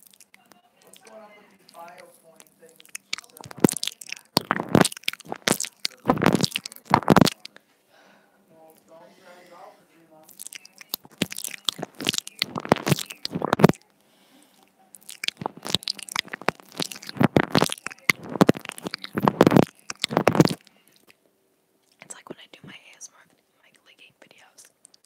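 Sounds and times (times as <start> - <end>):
teeth biting on earphone microphone: 0.0 - 7.6, 10.2 - 13.8, 15.0 - 21.2, 24.7 - 25.0.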